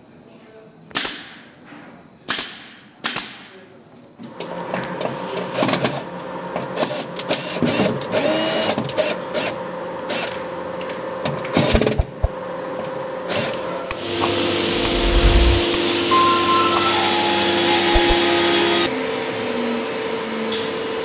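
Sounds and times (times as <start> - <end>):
cordless drill motor whine: 13.3 - 15.8
steady hum with hiss: 14.0 - 16.7.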